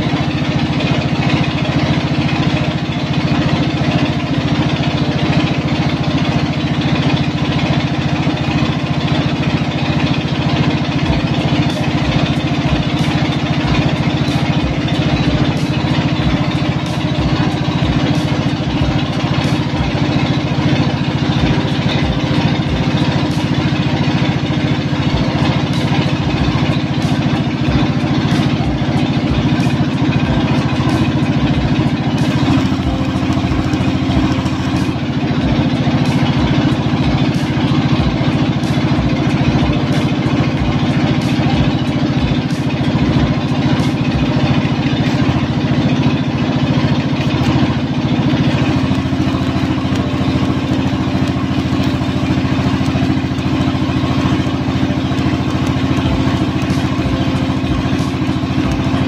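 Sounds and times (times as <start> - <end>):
engine running steadily: 0.0 - 59.0.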